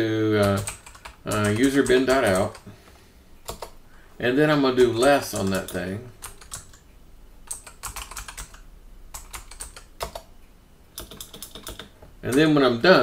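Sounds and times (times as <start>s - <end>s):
computer keyboard typing: 0.4s - 2.7s, 3.4s - 3.8s, 4.8s - 6.8s, 7.4s - 10.3s, 10.9s - 12.6s.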